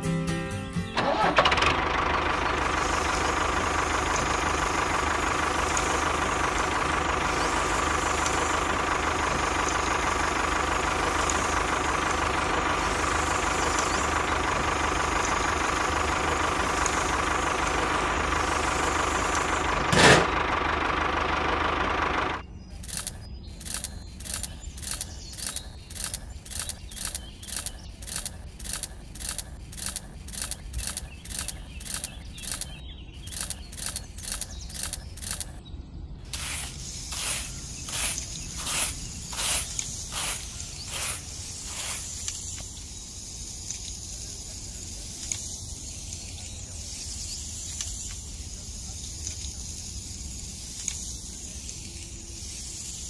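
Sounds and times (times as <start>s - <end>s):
tool scraping through sand: 19.9s - 20.3s, 36.3s - 42.4s
sand swishing by hand: 36.3s - 42.6s.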